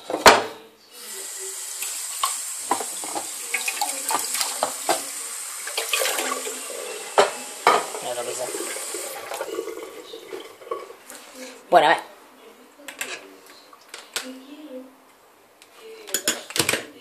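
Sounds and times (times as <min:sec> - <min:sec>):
tap running into a metal sink: 0:01.8 - 0:09.6.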